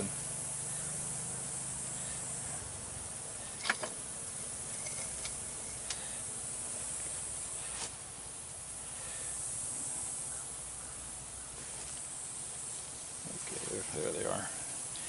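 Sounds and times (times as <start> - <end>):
steady hiss: 0.0 - 15.0
metal scrap clinking: 3.5 - 6.0.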